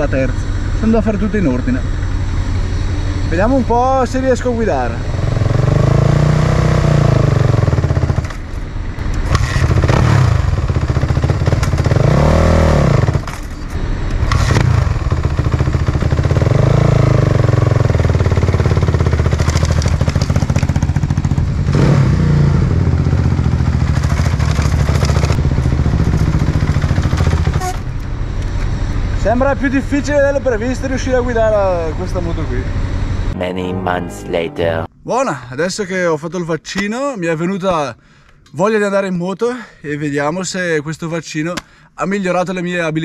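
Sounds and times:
motorcycle engine revving: 0:05.1 - 0:08.4, 0:09.2 - 0:13.3, 0:14.2 - 0:27.6.

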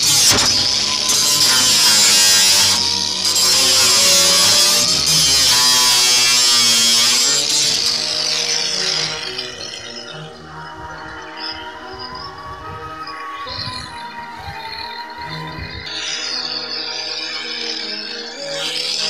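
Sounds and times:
angle grinder cutting metal sheet: 0:00.0 - 0:11.0, 0:15.6 - 0:19.0.

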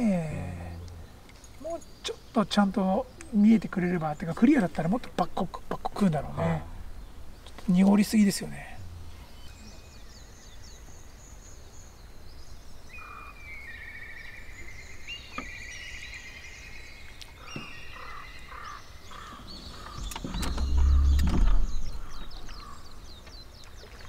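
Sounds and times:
songbirds singing: 0:00.0 - 0:24.0
low rumble: 0:08.7 - 0:09.9, 0:20.0 - 0:22.9.

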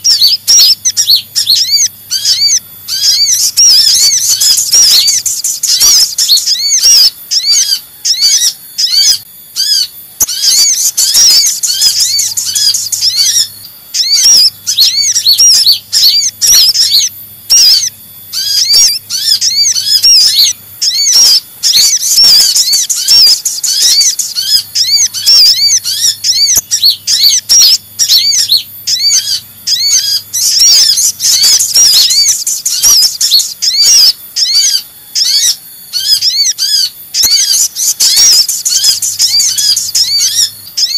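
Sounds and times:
high-pitched bird chirping: 0:00.0 - 0:40.9.

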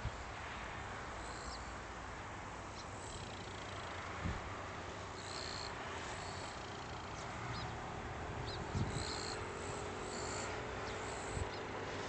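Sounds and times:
insects trilling: 0:05.2 - 0:07.6, 0:08.4 - 0:11.6.

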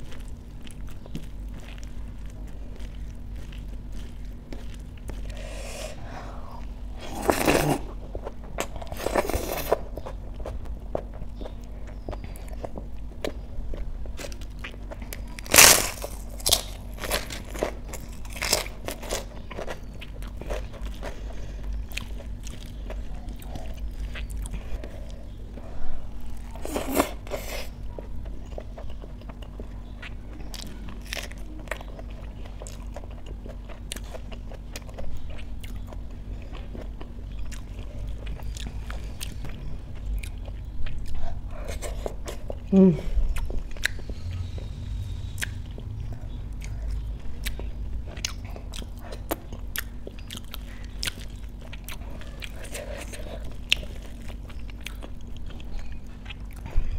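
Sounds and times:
crunchy bites: 0:00.0 - 0:25.3
wet chewing and mouth clicks: 0:00.0 - 0:56.7.

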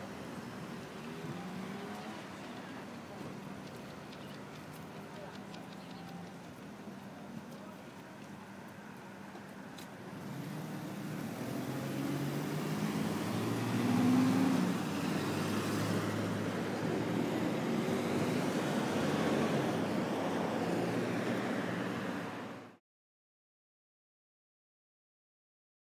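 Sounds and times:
vehicle engine and tyre noise: 0:00.0 - 0:22.8.

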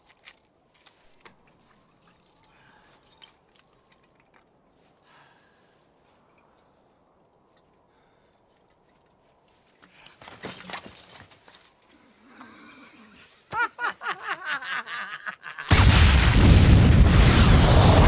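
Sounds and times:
rustling movement: 0:00.0 - 0:12.2
men laughing: 0:13.4 - 0:15.8
loud rumbling explosion: 0:15.7 - 0:18.0.

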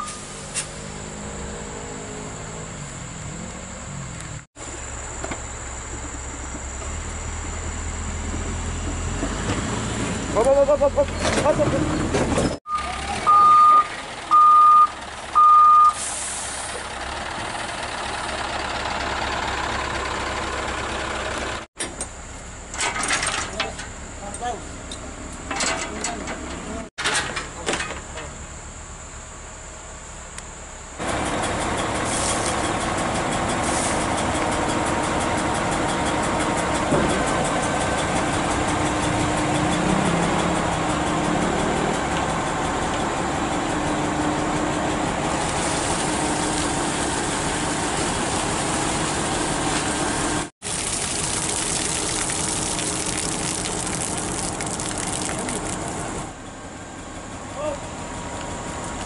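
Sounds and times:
diesel truck engine idling: 0:10.2 - 0:22.7, 0:28.3 - 0:50.5, 0:53.1 - 0:59.0.

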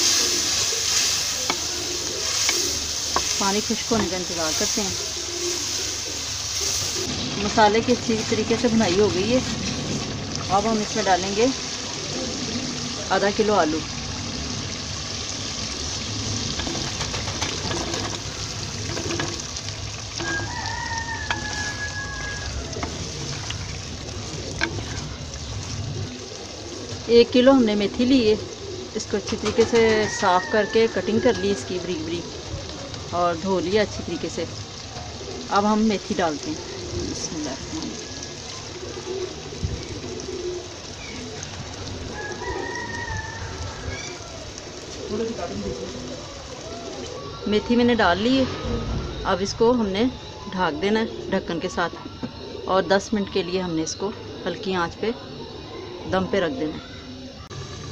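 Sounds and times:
pigeon cooing: 0:00.0 - 0:07.2, 0:08.4 - 0:49.3, 0:50.0 - 0:57.9
food hissing in pot: 0:00.0 - 0:27.4
spices sizzling in a pot: 0:00.0 - 0:57.9
wooden spoon stirring and knocking: 0:16.5 - 0:25.8
rooster crowing: 0:20.2 - 0:23.6, 0:29.4 - 0:32.2, 0:37.5 - 0:38.7, 0:42.0 - 0:47.7.

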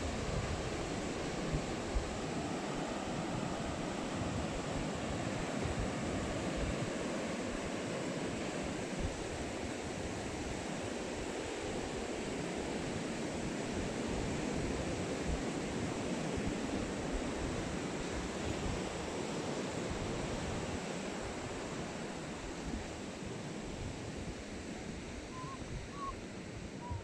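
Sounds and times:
wind buffeting microphone: 0:25.0 - 0:27.0.

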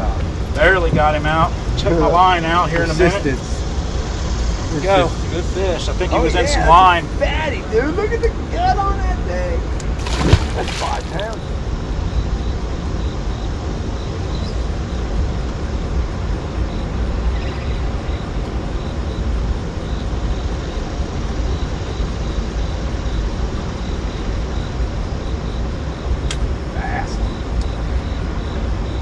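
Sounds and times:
churning water rushing: 0:00.0 - 0:11.7
turbines rumbling: 0:00.0 - 0:29.0.

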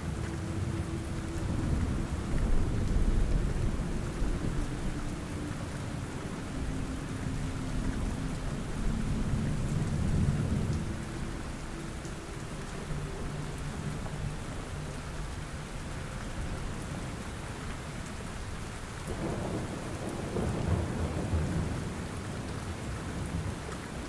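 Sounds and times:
low rolling thunder: 0:00.0 - 0:11.5, 0:19.1 - 0:23.6
rain falling: 0:00.0 - 0:24.0.

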